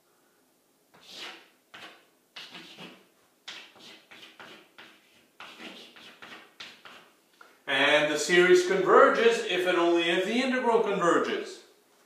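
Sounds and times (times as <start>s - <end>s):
chalk tapping and scraping: 1.0s - 7.2s.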